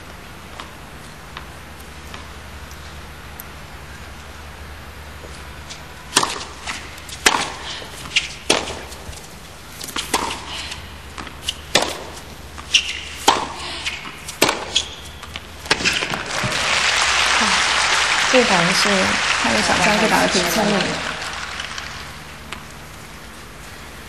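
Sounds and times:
racket striking tennis ball: 6.1 - 9.0, 9.8 - 16.2
crowd applause: 16.0 - 22.6.

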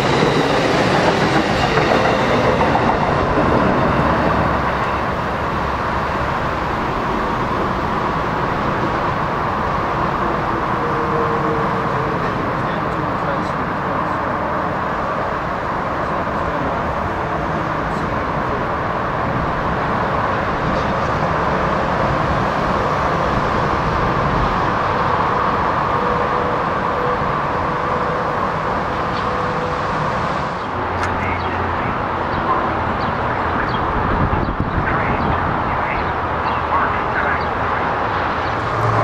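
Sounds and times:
station ambience: 0.0 - 39.0
electric train running: 38.3 - 39.0.

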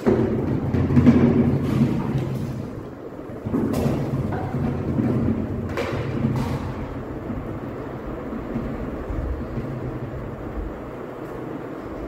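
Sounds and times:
steady low rumble: 0.0 - 12.0
knocks on plastic bucket: 3.5 - 7.0.

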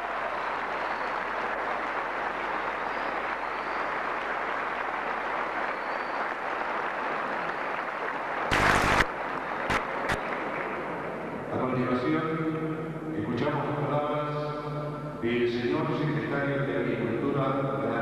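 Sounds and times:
crowd applauding: 0.0 - 11.5
loud burst of noise: 8.5 - 10.2.

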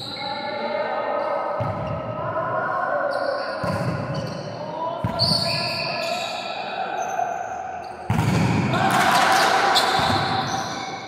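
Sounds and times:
volleyballs thudding on gym floor: 8.1 - 9.2.

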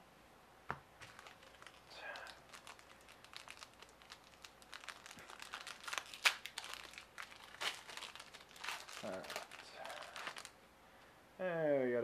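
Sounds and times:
wrapper crinkling and tearing: 1.0 - 10.6.

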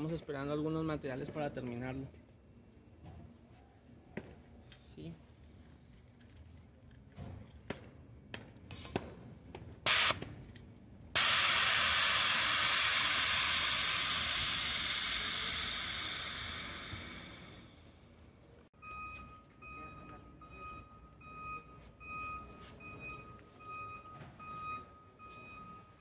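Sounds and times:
compressed air hissing: 9.9 - 10.2, 11.2 - 17.8.

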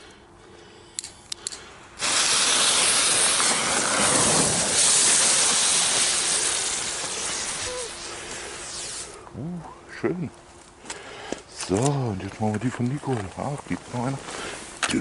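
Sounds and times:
small clicks: 1.0 - 1.7
fireworks spraying sparks hiss: 2.0 - 9.2.

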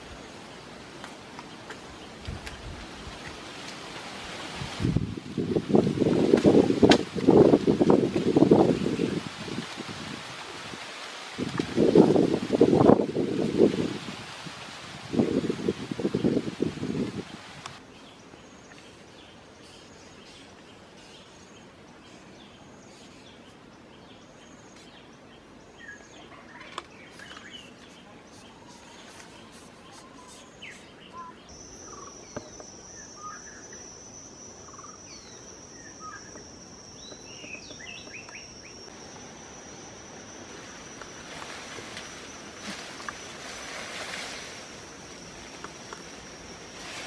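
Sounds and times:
background hiss: 0.0 - 47.0
bird chirps: 24.2 - 42.4
high-pitched insect drone: 31.5 - 47.0.

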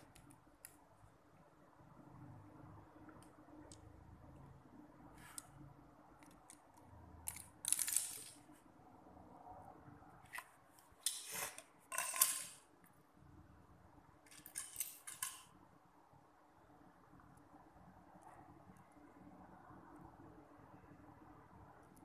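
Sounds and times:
plastic toy pieces clattering: 7.3 - 8.4, 11.1 - 12.6, 14.3 - 15.5.

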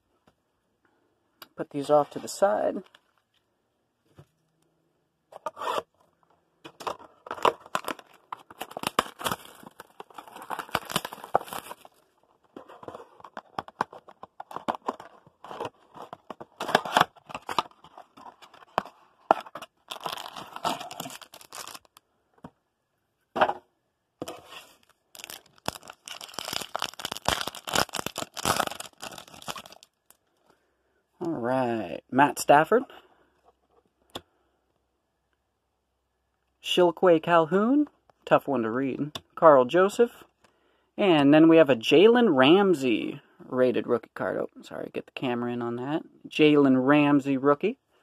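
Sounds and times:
foil pack tearing and crinkling: 7.3 - 12.0, 19.4 - 22.0, 25.2 - 29.9.

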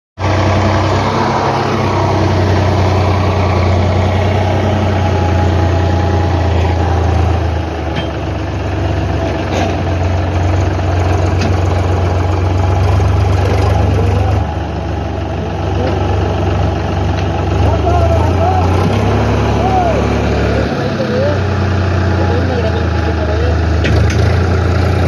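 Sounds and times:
tractor diesel engine idling: 0.2 - 25.0.

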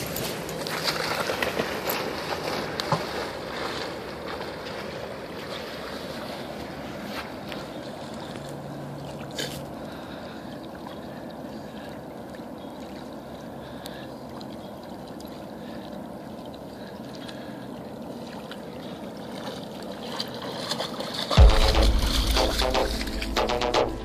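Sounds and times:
dog swimming and paddling splashes: 0.0 - 22.8.

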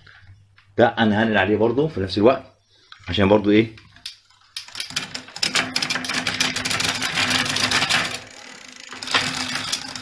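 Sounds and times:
bicycle chain ticking over sprockets: 4.0 - 10.0.

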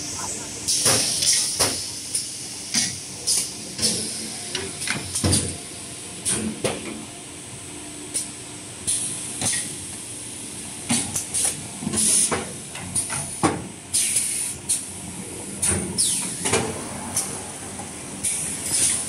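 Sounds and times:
pneumatic exhaust hisses: 13.9 - 14.9, 18.2 - 19.0.

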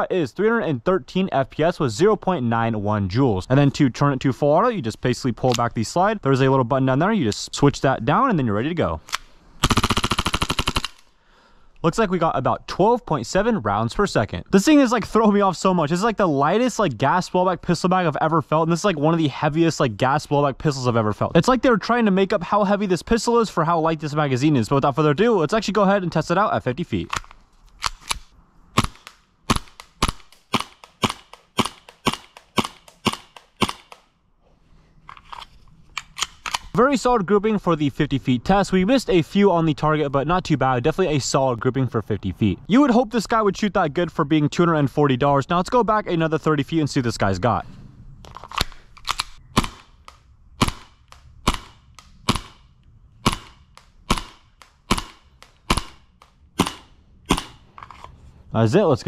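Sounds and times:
airsoft pistol shots: 28.8 - 34.0, 49.6 - 50.0, 50.6 - 57.6.

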